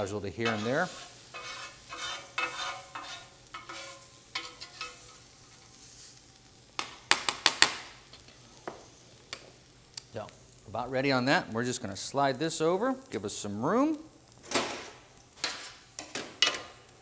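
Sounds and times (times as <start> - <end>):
faint sizzle: 0.0 - 17.0
metal spatula scraping grill plate: 0.4 - 6.2
metallic clanks of utensils: 1.4 - 5.3, 14.5 - 16.8.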